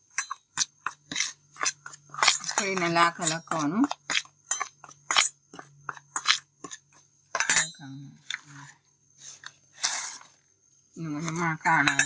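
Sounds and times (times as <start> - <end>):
metal spoon clinking in steel bowl: 0.1 - 1.0, 1.6 - 5.3, 5.9 - 7.8, 11.3 - 12.0.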